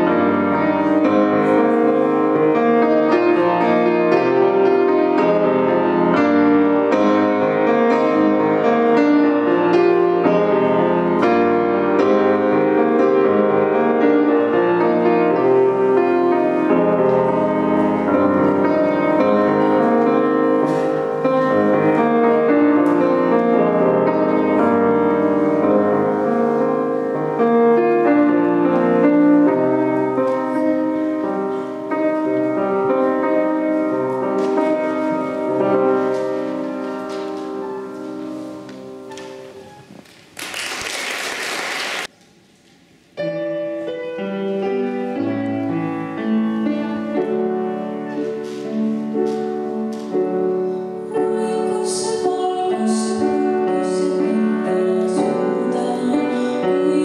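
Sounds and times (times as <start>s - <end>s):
solo piano: 0.0s - 42.2s, 43.1s - 57.0s
applause: 40.3s - 42.1s.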